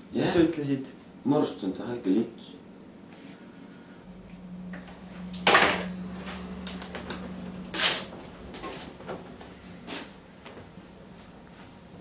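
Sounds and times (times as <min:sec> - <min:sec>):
chair scraping: 0:05.4 - 0:11.8.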